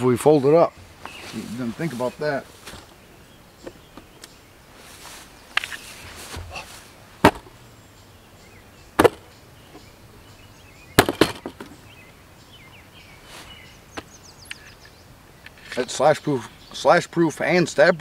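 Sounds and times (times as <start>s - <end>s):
faint bird chirps: 0.6s - 6.9s, 7.6s - 18.0s
sharp loud knocks: 7.2s - 7.5s, 9.0s - 9.2s, 11.0s - 11.8s.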